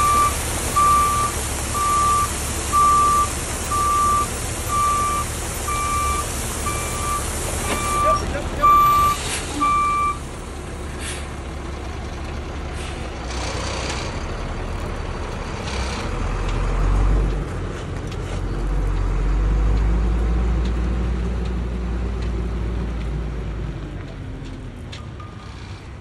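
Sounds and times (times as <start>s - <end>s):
diesel truck engine rumbling: 0.0s - 26.0s
short hisses: 11.0s - 11.3s.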